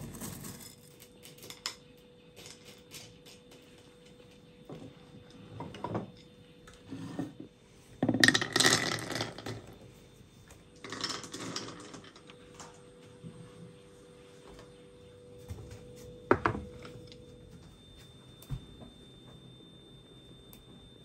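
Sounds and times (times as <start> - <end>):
wooden bowl scraping and rattling: 6.8 - 9.7.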